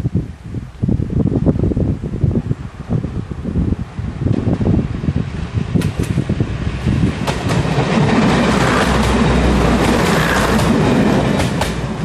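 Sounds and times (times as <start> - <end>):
diesel train rumbling past: 3.7 - 12.0
wheels clicking over rail joints: 5.7 - 12.0.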